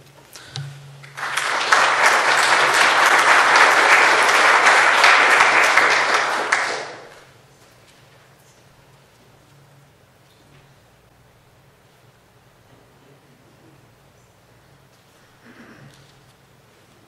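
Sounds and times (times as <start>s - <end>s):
audience applauding: 1.0s - 7.3s.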